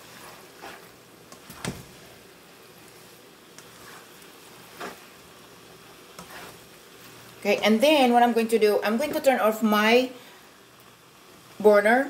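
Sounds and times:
spatula scraping a pan: 0.0 - 7.8
noodles sizzling in a frying pan: 0.0 - 12.0.

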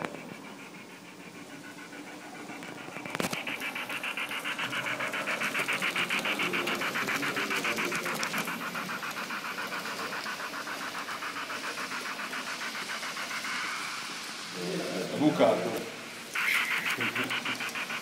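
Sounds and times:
model train running on track: 0.0 - 18.0.

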